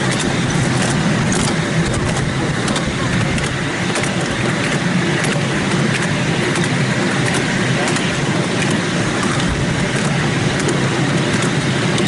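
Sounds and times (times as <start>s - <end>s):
miniature train running rumble: 0.0s - 12.0s.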